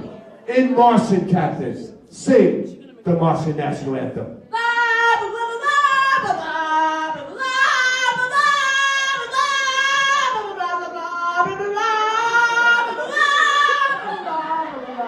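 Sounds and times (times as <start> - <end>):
woman singing gibberish: 4.5 - 15.0.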